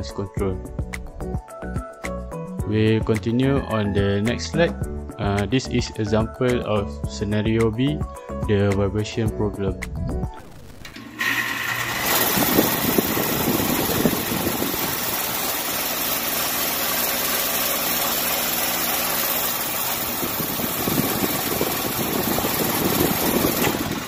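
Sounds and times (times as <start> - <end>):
air conditioner unit buzzing hum: 10.4 - 24.0.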